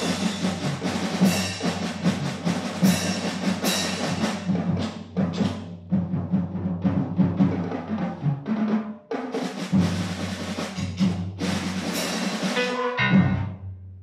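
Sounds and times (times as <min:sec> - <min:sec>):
school ensemble playing: 0:00.0 - 0:04.9, 0:09.7 - 0:13.7
drum roll: 0:00.0 - 0:13.8.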